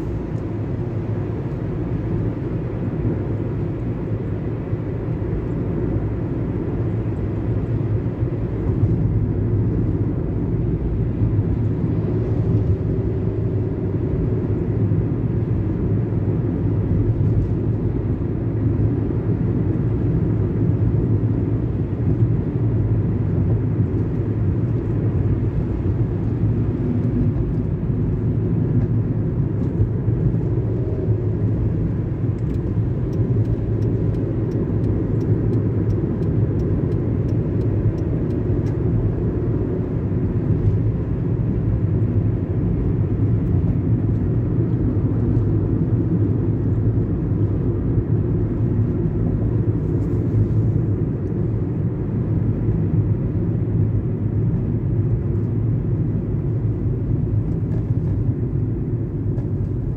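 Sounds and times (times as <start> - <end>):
car engine and tyres rumbling: 0.0 - 59.9.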